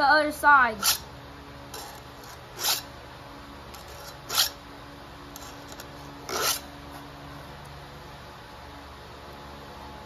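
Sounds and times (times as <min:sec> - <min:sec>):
file scraping chainsaw chain: 0:00.8 - 0:01.1, 0:01.7 - 0:02.9, 0:03.7 - 0:04.6, 0:05.3 - 0:06.7.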